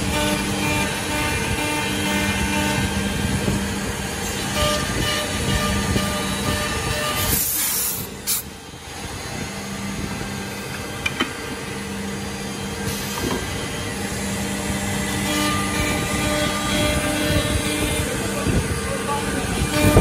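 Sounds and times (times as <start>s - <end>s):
compressed air hissing: 0.0s - 8.7s
machine humming: 0.0s - 20.0s.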